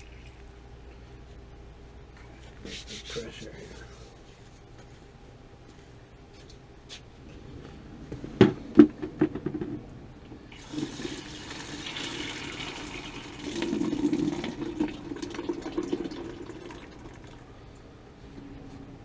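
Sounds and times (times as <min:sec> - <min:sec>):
water running into bucket: 0:10.5 - 0:17.4.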